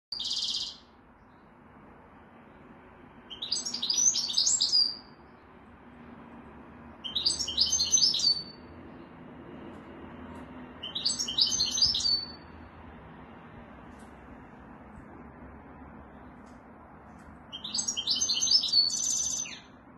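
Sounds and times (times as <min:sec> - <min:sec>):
bird call: 0:00.1 - 0:00.9, 0:03.3 - 0:05.0, 0:07.0 - 0:08.6, 0:10.8 - 0:12.4, 0:17.5 - 0:19.7
bird twittering song: 0:00.1 - 0:01.6, 0:03.3 - 0:05.6, 0:07.0 - 0:09.0, 0:10.8 - 0:12.6, 0:17.4 - 0:19.8.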